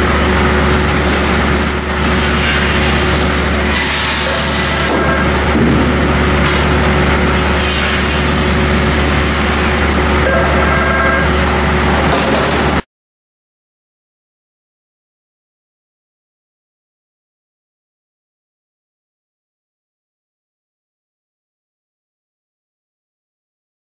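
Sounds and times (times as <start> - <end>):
low hum: 0.0 - 12.8
lumber trimmer machinery din: 0.0 - 12.8.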